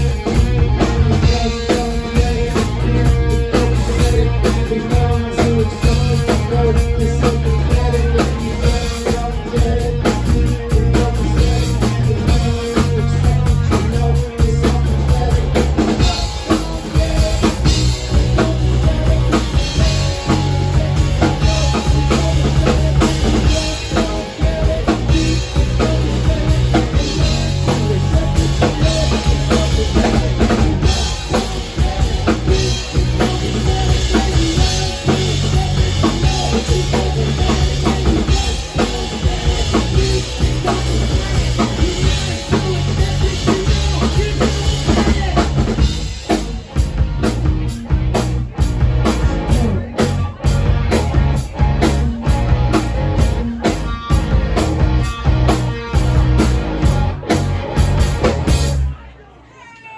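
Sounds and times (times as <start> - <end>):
drum kit beat: 0.0 - 59.0
electric guitar: 0.0 - 59.1
live rock band playing: 0.0 - 59.8.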